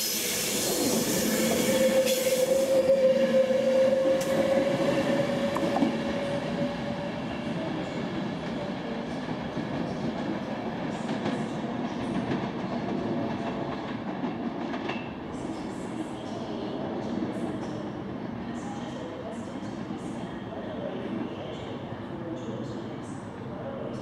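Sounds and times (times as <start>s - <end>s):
electric train whine: 0.0s - 7.4s.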